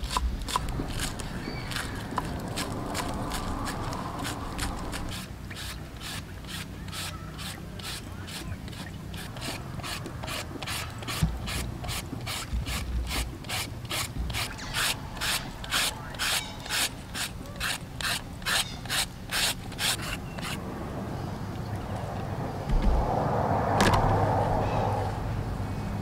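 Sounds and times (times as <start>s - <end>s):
peeler rasping scrapes: 0.0s - 20.6s.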